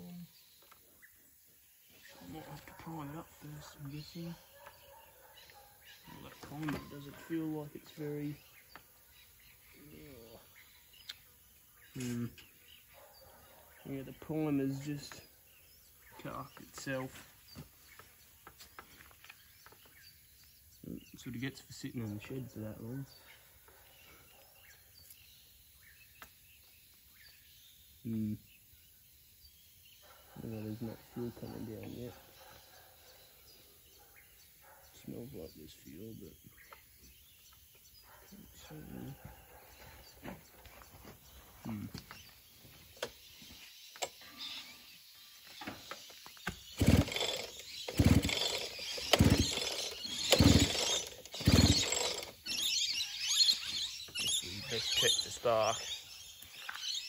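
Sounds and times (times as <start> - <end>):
faint bird chirps: 0.0 - 57.0
engine turning over on pull-start: 46.7 - 52.8.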